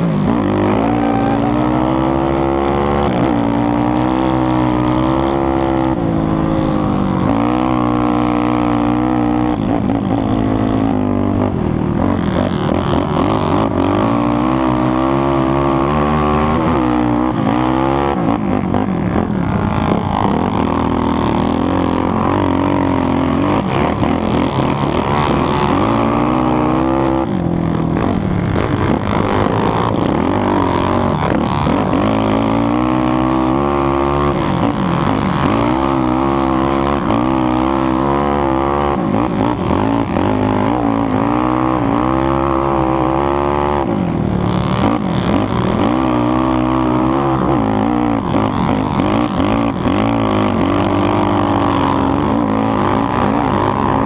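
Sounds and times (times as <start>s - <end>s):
quad engine revving: 0.0s - 54.0s.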